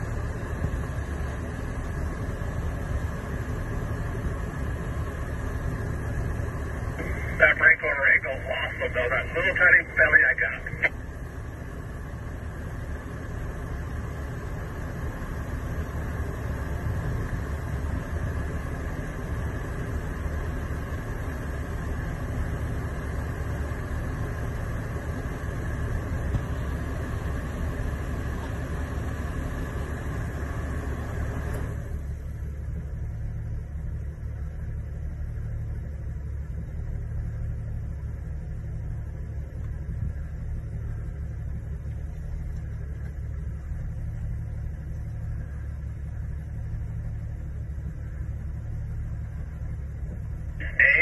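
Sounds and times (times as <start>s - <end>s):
vehicle engine rumbling: 0.0s - 51.0s
track noise: 3.6s - 13.9s, 37.4s - 51.0s.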